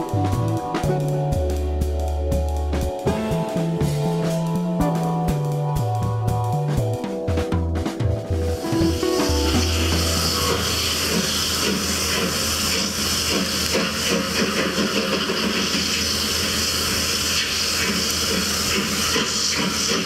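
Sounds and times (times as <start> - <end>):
steam locomotive hissing: 8.3 - 20.0.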